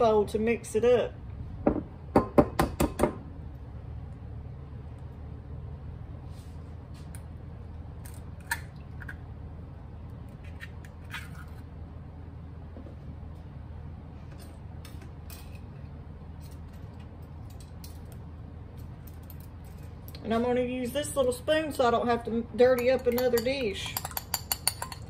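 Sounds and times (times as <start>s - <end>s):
kitchen room hum: 0.0s - 25.0s.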